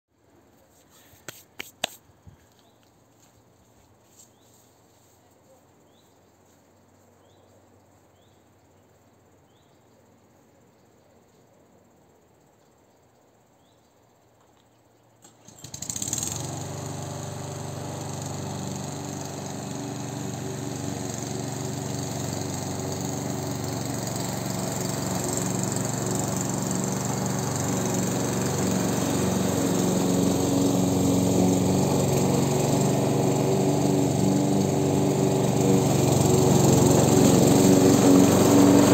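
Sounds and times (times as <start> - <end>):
lawn mower engine running: 15.2 - 38.9.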